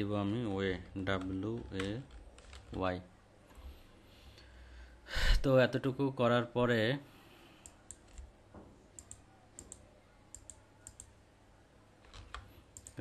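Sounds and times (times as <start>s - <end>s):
computer mouse clicks: 7.6s - 8.3s, 8.9s - 11.2s, 12.0s - 13.0s.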